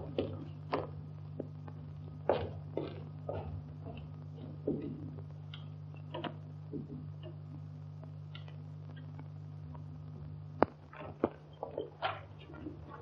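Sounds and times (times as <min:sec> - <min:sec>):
film soundtrack hum: 0:00.0 - 0:13.0.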